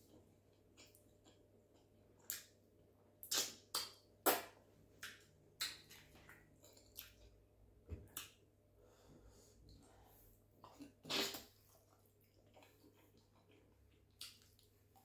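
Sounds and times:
wet eating smacks and squelches: 0.5 - 2.6, 3.2 - 7.4, 10.5 - 15.0.

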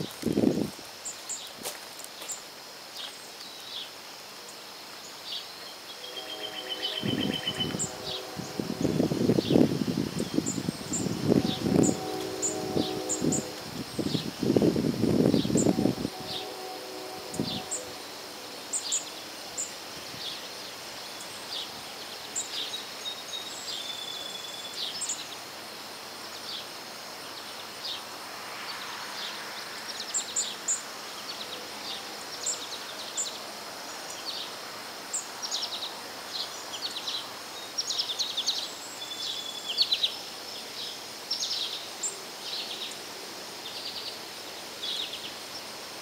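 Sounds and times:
high outdoor hiss: 0.0 - 46.0
wild birds chirping: 3.0 - 25.4.

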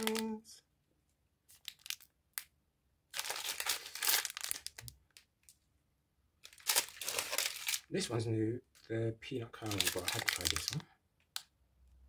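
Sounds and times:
plastic wrappers crinkling: 0.0 - 0.4, 1.5 - 2.1, 3.1 - 5.6, 6.4 - 7.9, 9.6 - 10.9.

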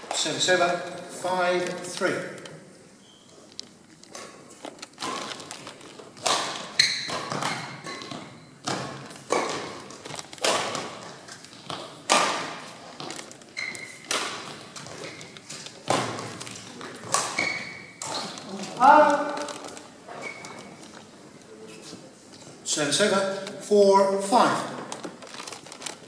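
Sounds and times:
shoe squeaks: 3.0 - 3.5, 6.7 - 8.6, 13.5 - 14.1, 14.9 - 15.4, 17.3 - 18.6, 20.1 - 20.8
rackets hitting shuttlecock: 6.1 - 13.1, 13.8 - 18.4.

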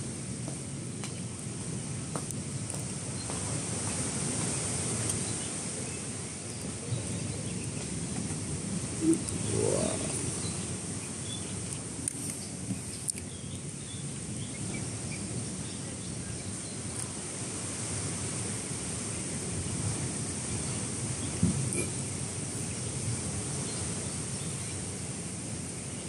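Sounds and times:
wind: 0.0 - 26.0
short rising bird call: 9.0 - 10.7
faint bird chirps: 9.0 - 11.5.

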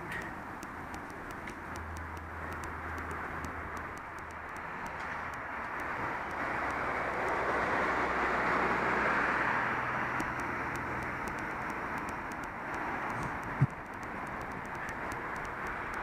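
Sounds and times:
road traffic passing: 0.0 - 16.0.

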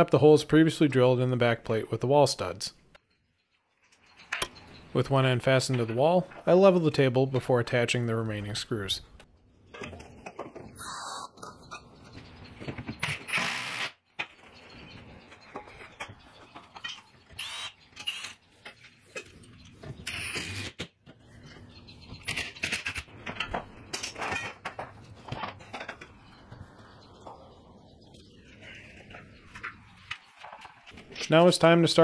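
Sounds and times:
impact driver driving screws: 13.1 - 14.0, 17.4 - 18.3.

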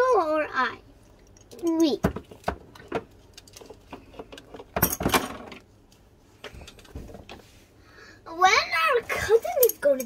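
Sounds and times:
plastic toys clicking and knocking: 1.1 - 5.7.

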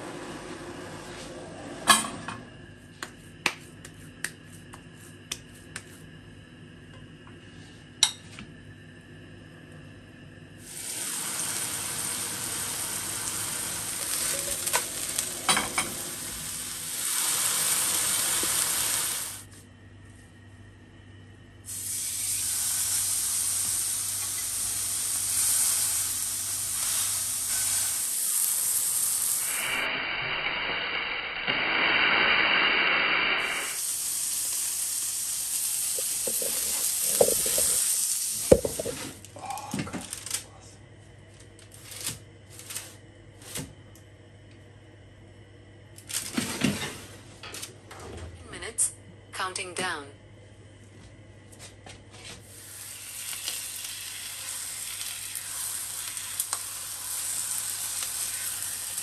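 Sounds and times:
burger sizzling in frying pan: 10.6 - 19.5, 21.7 - 29.9, 31.0 - 39.1, 52.4 - 59.0.

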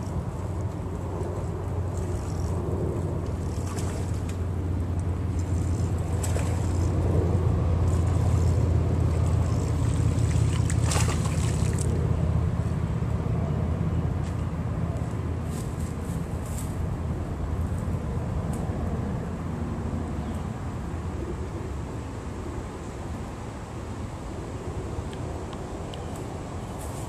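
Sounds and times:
boat motor humming: 0.0 - 14.1.

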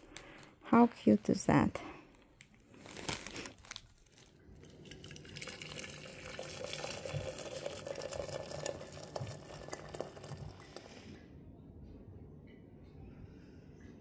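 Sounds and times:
water pouring into teapot: 4.6 - 11.0.

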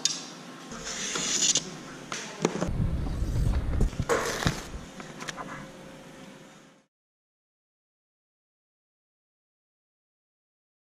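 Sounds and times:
low rumble: 2.7 - 4.9.

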